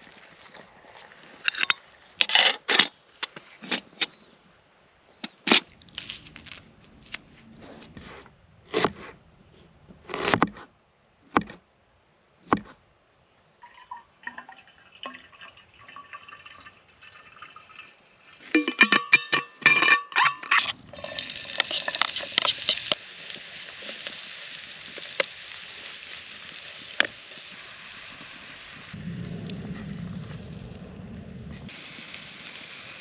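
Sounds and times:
cookware knocking and clinking: 18.6 - 20.4.

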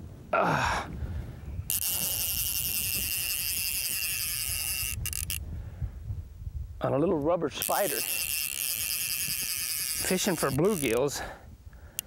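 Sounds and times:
fishing reel drag buzzing: 1.7 - 5.4, 7.6 - 11.2.

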